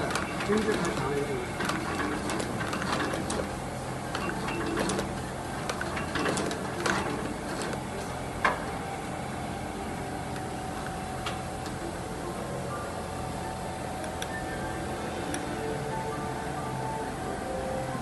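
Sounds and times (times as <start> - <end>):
sewing machine motor hum: 0.0 - 8.9.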